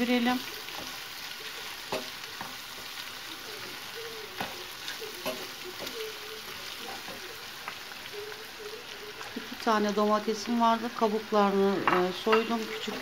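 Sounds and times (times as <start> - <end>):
food sizzling in frying pan: 0.0 - 13.0.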